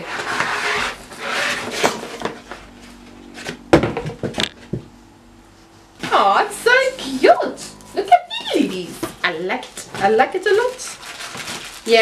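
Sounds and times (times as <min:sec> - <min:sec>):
cardboard scraping and rustling: 0:00.0 - 0:04.8, 0:07.9 - 0:12.0.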